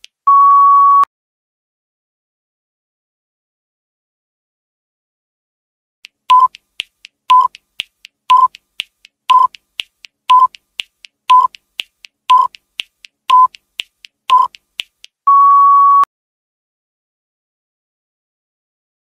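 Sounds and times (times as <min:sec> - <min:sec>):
long steady beep: 0:00.3 - 0:01.1, 0:06.3 - 0:06.5, 0:15.3 - 0:16.1
short timer beeps: 0:06.3 - 0:06.6, 0:07.3 - 0:07.6, 0:08.3 - 0:08.6, 0:09.3 - 0:09.6, 0:10.3 - 0:10.6, 0:11.3 - 0:11.6, 0:12.3 - 0:12.6, 0:13.3 - 0:13.6, 0:14.3 - 0:14.6.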